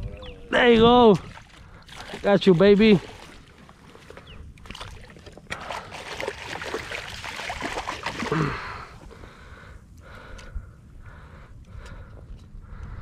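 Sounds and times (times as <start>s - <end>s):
water splashing against kayak: 1.1s - 9.1s
person grunting: 8.3s - 8.9s.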